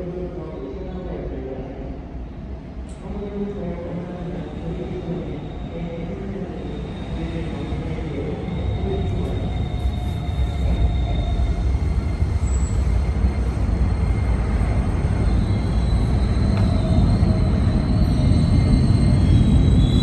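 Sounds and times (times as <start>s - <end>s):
electric train rumble: 0.0s - 20.0s
high wheel squeal: 6.7s - 20.0s.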